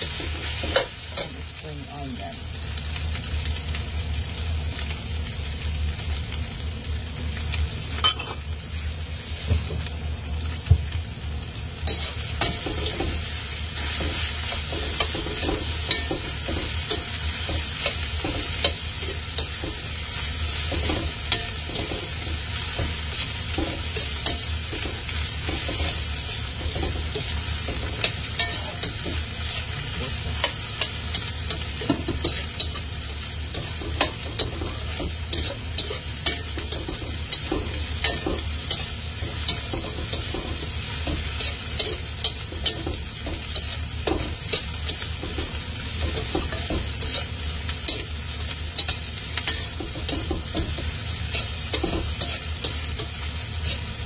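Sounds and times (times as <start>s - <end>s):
rice sizzling in a wok: 0.0s - 54.0s
spatula scraping a pan: 33.6s - 42.8s, 46.2s - 48.1s.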